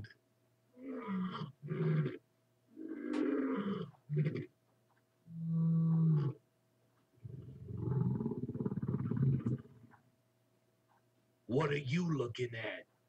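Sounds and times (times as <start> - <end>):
person growling and roaring: 2.8 - 4.4, 7.2 - 9.7.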